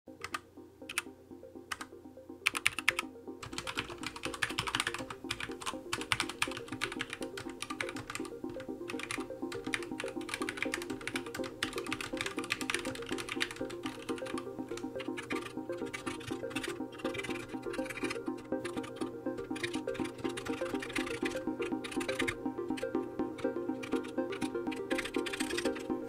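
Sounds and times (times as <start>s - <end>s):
background music: 0.1s - 26.0s
mechanical keyboard typing: 0.2s - 1.0s, 2.5s - 8.3s, 8.9s - 22.4s, 23.4s - 25.8s.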